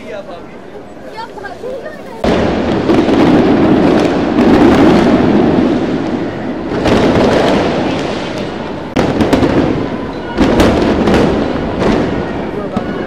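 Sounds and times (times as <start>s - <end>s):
fireworks crackling: 0.0s - 13.0s
fireworks booming: 2.2s - 13.0s.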